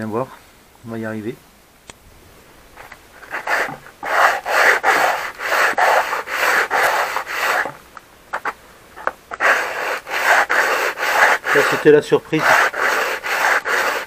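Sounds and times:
plastic rubbing on sandpaper: 0:02.8 - 0:08.6, 0:09.3 - 0:14.0.

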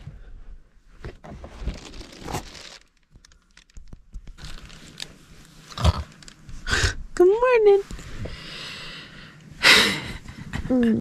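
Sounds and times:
rustling and crinkling: 0:00.0 - 0:06.7
small clicks and knocks: 0:02.9 - 0:05.1.

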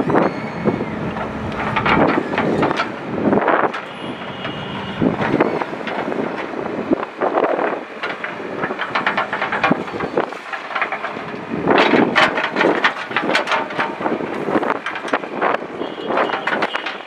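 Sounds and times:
backhoe engine and hydraulics: 0:00.0 - 0:17.0
metal clattering and scraping stones: 0:07.4 - 0:17.0.

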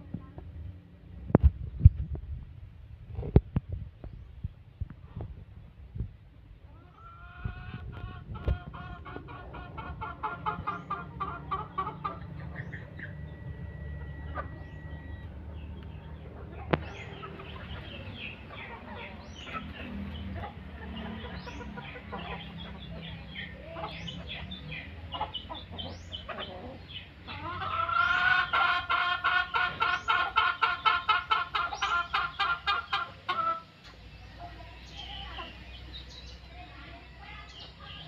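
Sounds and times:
small birds chirping: 0:03.1 - 0:38.0
chicken clucking rapidly: 0:06.7 - 0:36.5.

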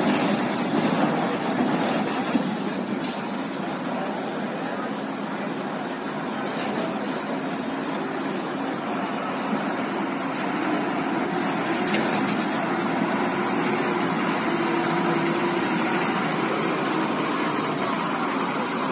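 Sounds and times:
truck and car engines running: 0:00.0 - 0:18.9.

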